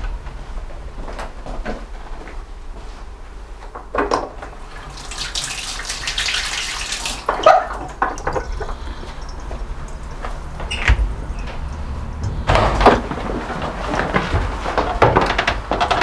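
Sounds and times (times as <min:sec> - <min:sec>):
tap running into sink: 0:04.0 - 0:13.2.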